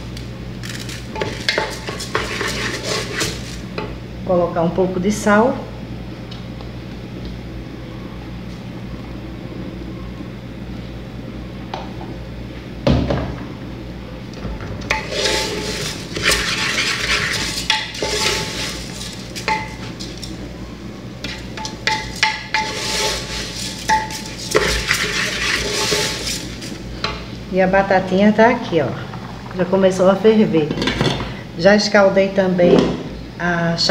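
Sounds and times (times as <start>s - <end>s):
steady low hum: 0.0s - 33.9s
wooden spoon scraping rice in pot: 0.7s - 3.7s, 14.9s - 20.4s, 21.2s - 26.8s.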